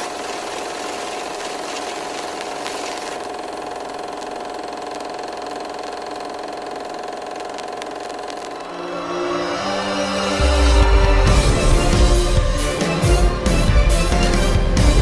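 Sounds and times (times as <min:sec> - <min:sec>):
small motor whirring: 0:00.0 - 0:09.1.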